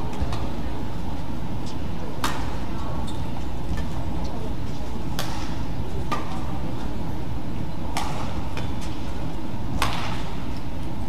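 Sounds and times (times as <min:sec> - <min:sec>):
low hum of hall: 0:00.0 - 0:11.0
rackets hitting shuttlecock: 0:02.2 - 0:02.6, 0:05.1 - 0:06.5, 0:07.9 - 0:09.1, 0:09.7 - 0:10.5.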